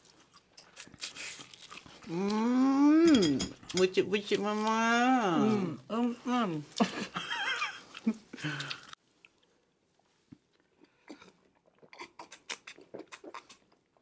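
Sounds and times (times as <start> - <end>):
chewing and sipping mouth sounds: 0.0 - 2.5, 7.9 - 14.0
person humming mmm: 2.1 - 3.5.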